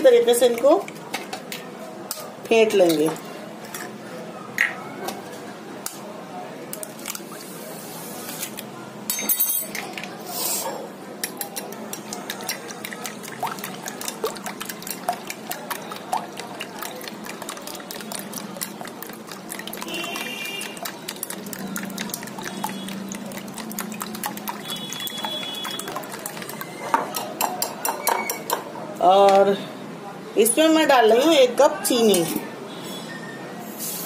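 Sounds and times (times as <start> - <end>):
eggs whisked wet sloshing: 11.3 - 27.7.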